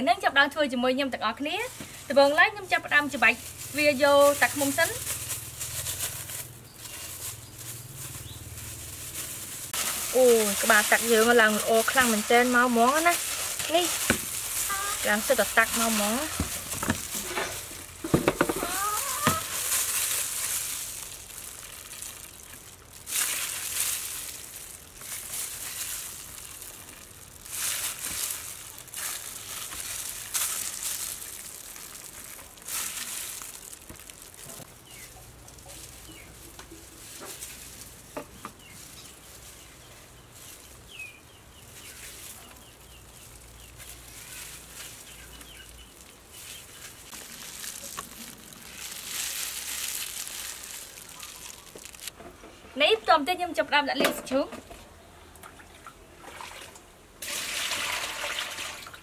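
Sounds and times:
plastic crinkling: 1.4s - 52.2s
chickens clucking: 18.2s - 19.6s.

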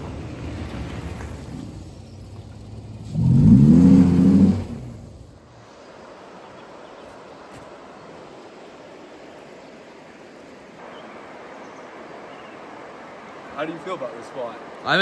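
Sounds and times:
pickup engine revving past: 0.0s - 5.3s.

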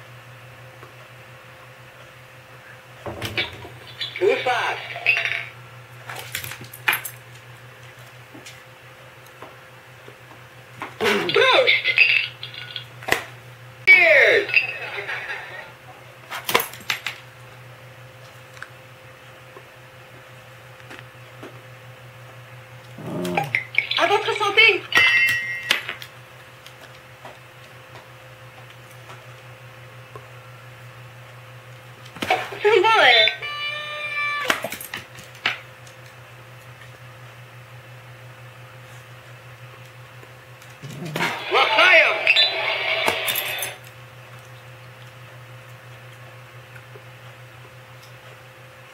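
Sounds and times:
low steady hum: 0.0s - 48.9s
recorded voice from talking button: 32.6s - 34.5s, 41.1s - 42.8s.

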